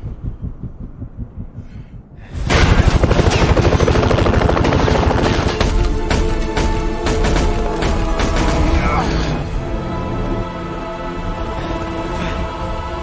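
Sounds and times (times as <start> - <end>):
low rhythmic throbbing: 0.0 - 13.0
rapid automatic gunfire: 2.6 - 8.8.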